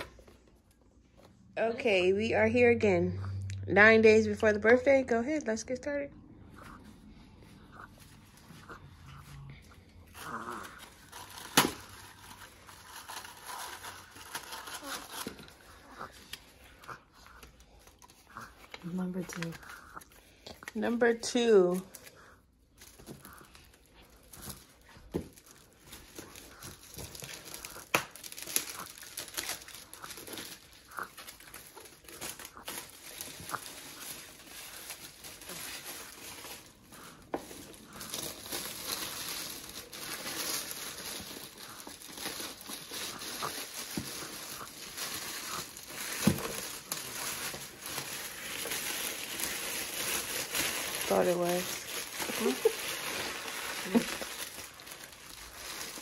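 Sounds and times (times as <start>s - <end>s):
foil gift wrap crinkling: 9.9s - 56.0s.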